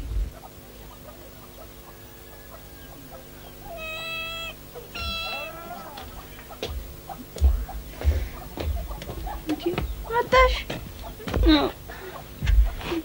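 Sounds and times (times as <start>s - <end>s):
cat meowing: 3.6s - 6.3s.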